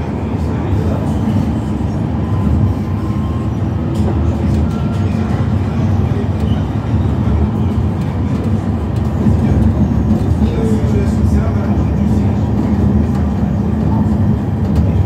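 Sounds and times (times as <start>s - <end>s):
train wheels rumbling on rail: 0.0s - 15.0s.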